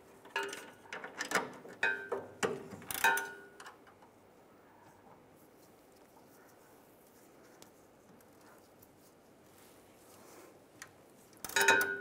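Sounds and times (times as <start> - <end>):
bolts and nuts clinking on metal: 0.2 - 4.1, 11.4 - 12.0.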